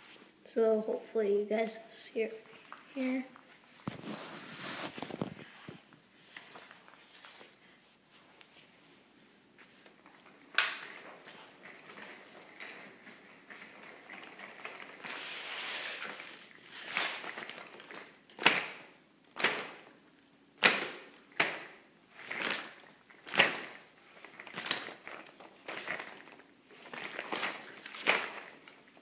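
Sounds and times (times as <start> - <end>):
stroller wheels rolling on tiles: 9.6 - 29.0.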